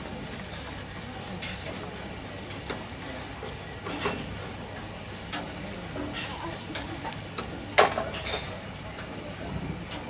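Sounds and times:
fish sizzling on a grill: 0.0 - 10.0
gas flame hissing: 0.0 - 10.0
metal spatula clinking and scraping: 5.9 - 7.2, 7.8 - 8.6.

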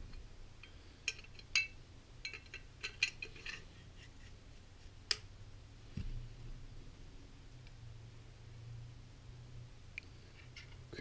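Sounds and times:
dull low thump: 5.9 - 6.6.

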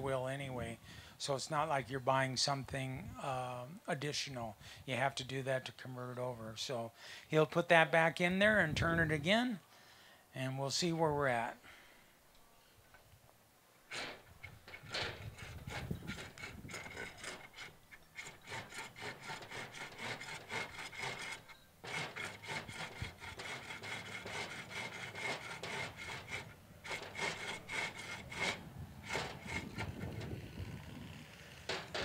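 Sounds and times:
ring gear scraping against housing: 13.9 - 32.0.

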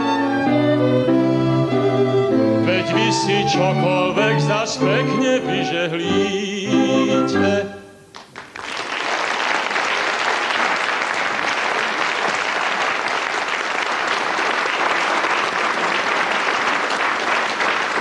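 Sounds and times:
man singing: 2.6 - 8.0
studio audience applause: 8.1 - 18.0.

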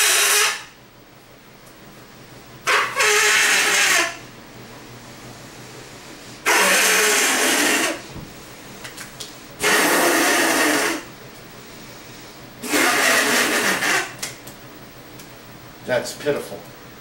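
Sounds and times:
breath blown through nose: 6.4 - 8.0, 9.6 - 11.1.

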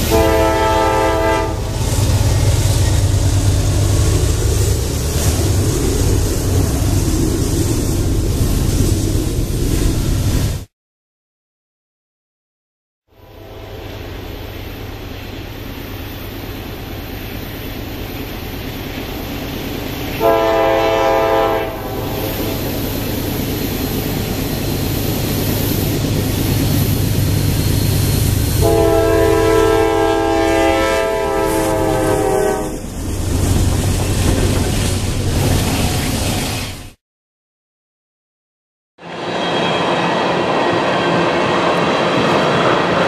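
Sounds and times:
train air horn: 0.0 - 1.8, 20.2 - 22.6, 28.6 - 32.8
train engine and rail rumble: 0.0 - 10.7, 13.1 - 37.0, 39.0 - 43.0.

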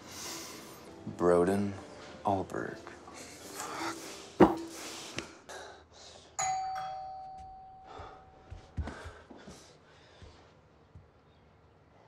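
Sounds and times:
doorbell chime: 6.4 - 8.4.

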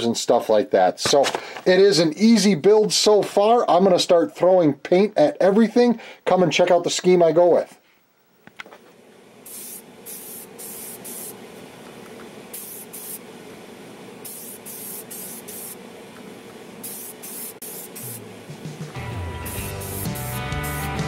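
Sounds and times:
steady low hum: 7.8 - 21.0
aerosol spray cans hissing: 9.4 - 13.3, 14.2 - 21.0.

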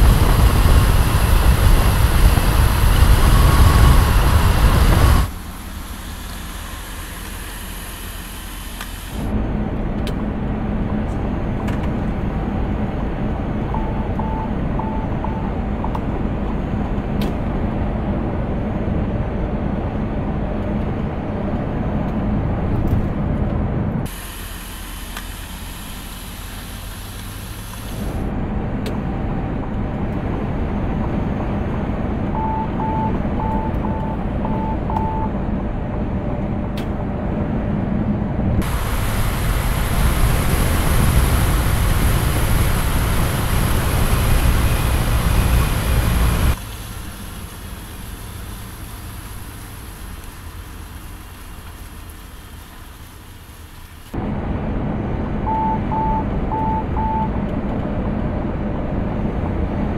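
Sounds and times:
rush of road and wind noise: 0.0 - 59.9
truck cab drone and road noise: 0.0 - 59.9
warning chime beeping: 13.8 - 15.7, 32.4 - 35.4.

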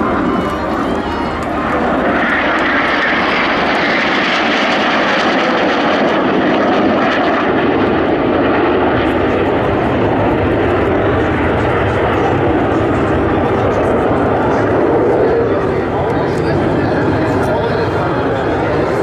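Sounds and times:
jets flying overhead: 0.0 - 19.0.

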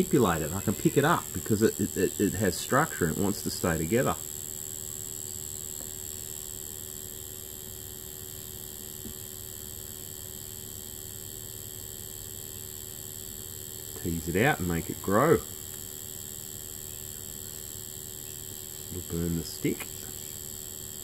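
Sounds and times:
electrical hum with high whine: 0.0 - 21.0.

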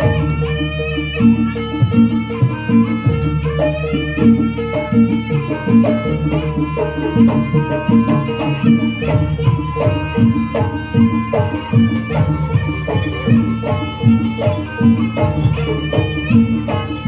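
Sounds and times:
hand drum strokes: 1.2 - 17.0
pitched melodic notes: 6.1 - 17.0.

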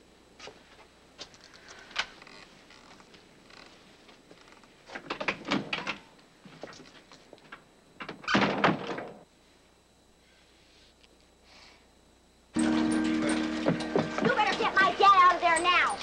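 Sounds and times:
knocks and thumps: 12.6 - 14.8.

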